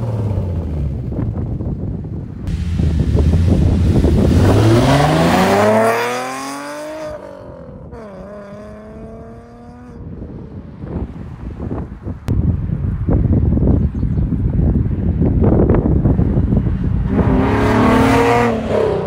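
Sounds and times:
car engine accelerating hard: 2.5s - 9.9s, 17.0s - 19.0s.

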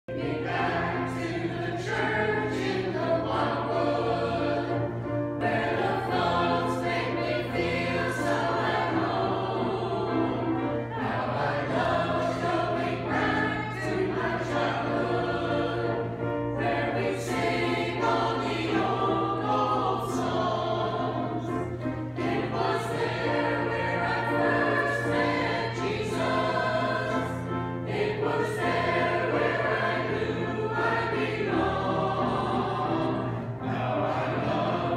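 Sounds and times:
mixed choir singing: 0.1s - 34.9s.

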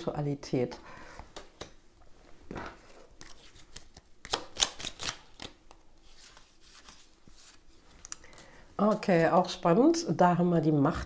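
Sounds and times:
cards being shuffled: 2.8s - 9.6s.

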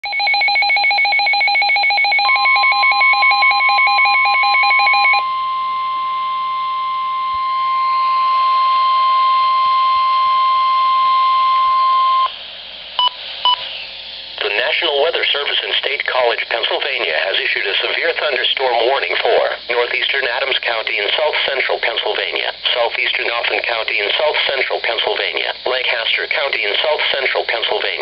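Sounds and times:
rapid electronic beeping: 0.0s - 5.2s
steady warning alarm tone: 0.0s - 12.3s
short beeps: 13.0s - 13.6s.

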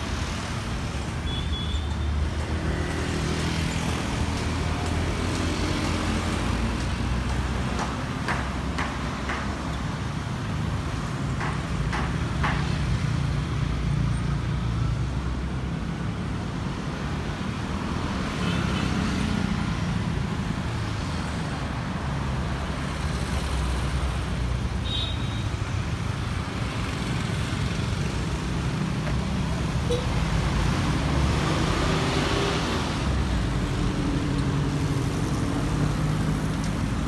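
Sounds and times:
street traffic rumble: 0.0s - 37.0s
brief high tone: 29.9s - 30.2s.

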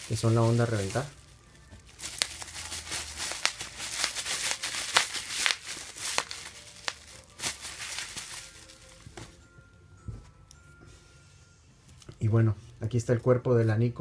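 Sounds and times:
bubble wrap crinkling and snapping: 0.0s - 9.4s.

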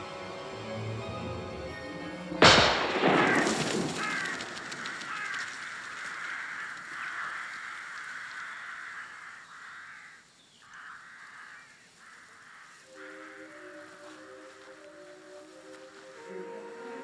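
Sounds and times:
music: 0.0s - 3.0s, 12.9s - 17.0s
echoing gunshot: 2.4s - 5.3s
crows cawing: 2.8s - 16.3s.

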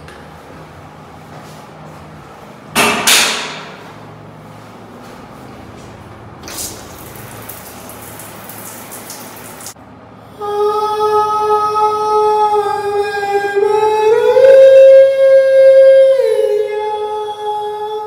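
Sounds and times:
shower spraying water: 6.4s - 9.8s
person singing long note: 10.2s - 18.0s.

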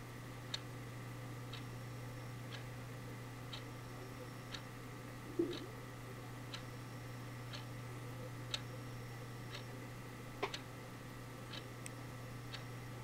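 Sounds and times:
steady low hum: 0.0s - 13.0s
clock ticking: 5.4s - 5.7s, 8.5s - 8.7s.

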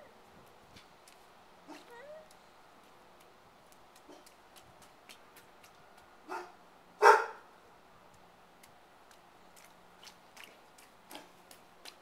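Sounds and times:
dog barking: 6.3s - 7.4s.

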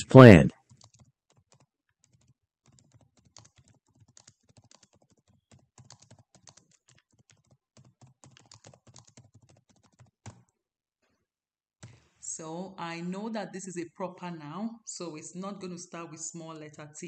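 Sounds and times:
typing on keyboard: 0.6s - 10.5s.

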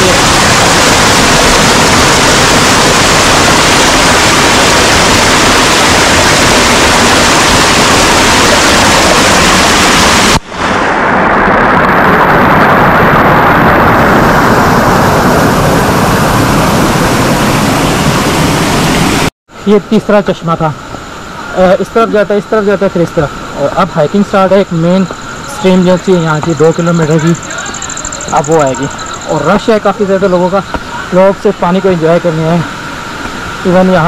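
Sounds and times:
fast-flowing stream rushing: 0.0s - 13.5s.

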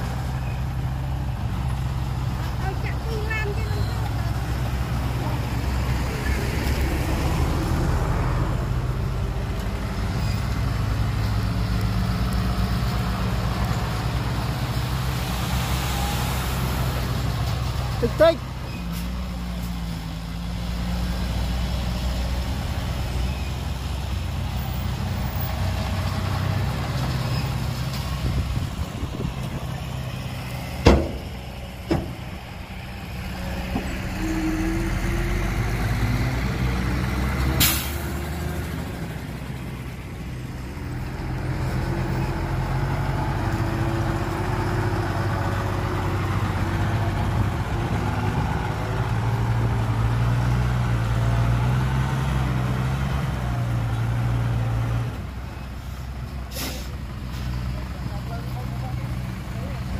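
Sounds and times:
heavy diesel engines: 0.0s - 59.9s
sharp knocks: 30.8s - 32.2s.

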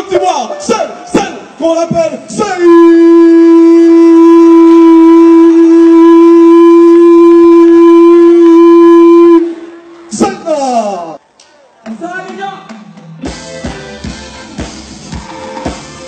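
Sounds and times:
loud horn note: 2.6s - 9.9s
crowd: 9.4s - 16.0s.

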